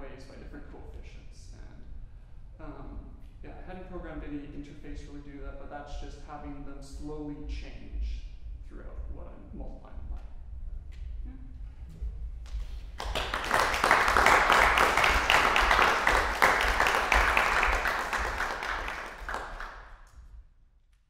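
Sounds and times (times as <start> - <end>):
low steady hum: 0.0 - 20.8
audience applauding: 13.0 - 20.0.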